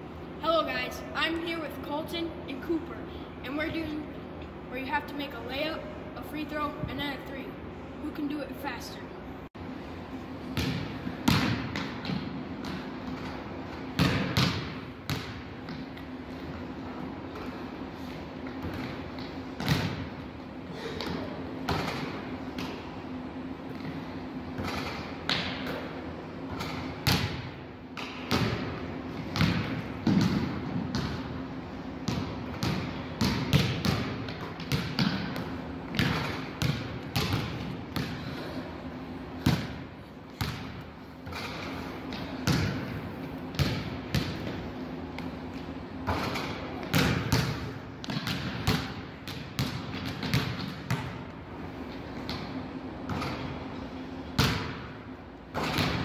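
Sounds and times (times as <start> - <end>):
basketballs bouncing on wood floor: 10.6 - 13.3, 14.0 - 16.0, 18.5 - 20.1, 26.5 - 31.3, 32.1 - 38.3, 39.4 - 39.8, 40.4 - 44.6, 45.5 - 51.2, 54.4 - 54.8, 55.6 - 56.0.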